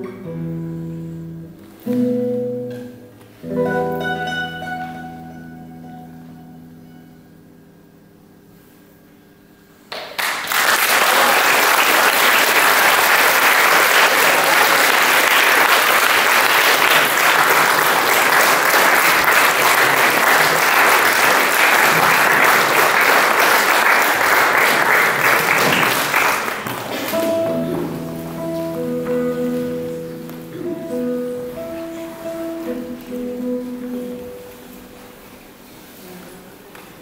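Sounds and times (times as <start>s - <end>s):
classical guitar notes: 0.0s - 8.7s, 26.6s - 36.5s
audience applauding: 9.9s - 27.4s.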